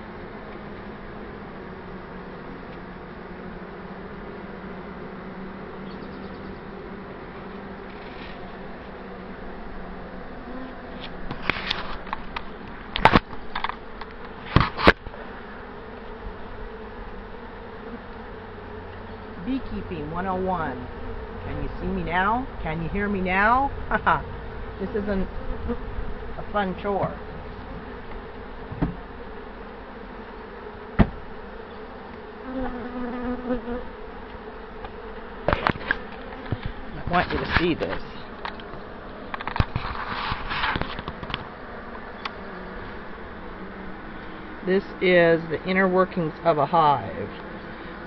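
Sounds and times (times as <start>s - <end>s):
honey bees buzzing: 0.0s - 48.0s
sharp knocks and rustles: 7.8s - 8.6s, 10.8s - 15.2s, 28.1s - 29.1s, 30.9s - 31.2s, 34.3s - 41.6s
sharp knocks: 28.7s - 29.0s, 31.0s - 31.2s.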